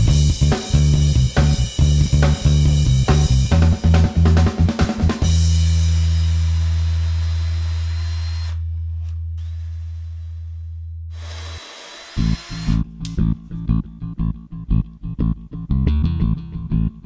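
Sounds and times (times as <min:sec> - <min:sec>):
drum kit hits: 0:00.0 - 0:06.0
rock music: 0:00.0 - 0:06.9, 0:12.2 - 0:16.9.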